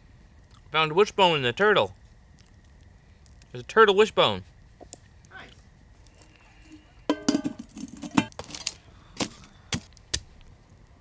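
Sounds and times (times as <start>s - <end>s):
metal pot ringing clank: 7.1s - 8.2s
metal cookware clanking: 7.1s - 8.3s.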